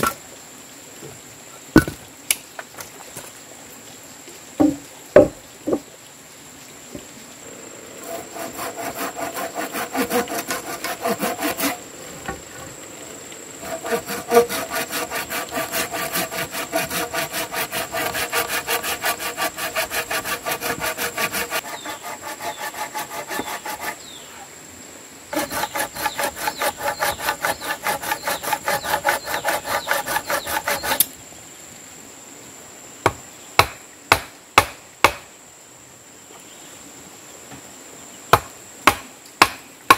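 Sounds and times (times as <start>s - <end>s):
handsaw cutting wood: 8.0s - 11.9s, 13.6s - 24.1s, 25.3s - 31.1s.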